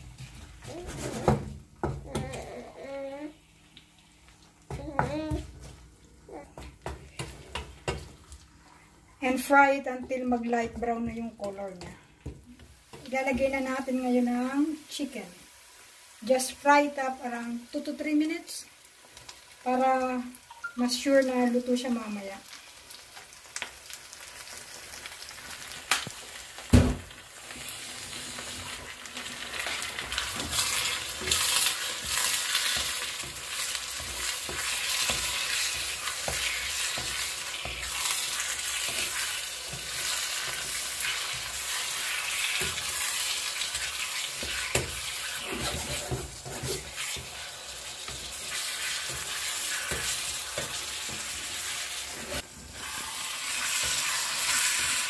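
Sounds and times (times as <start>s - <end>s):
chicken sizzling in oil: 12.5s - 55.0s.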